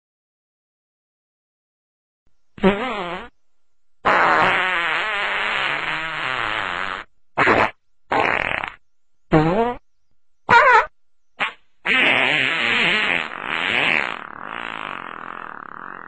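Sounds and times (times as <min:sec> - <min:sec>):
fart sound effects: 0:02.6 - 0:03.3, 0:04.0 - 0:09.8, 0:10.5 - 0:16.0.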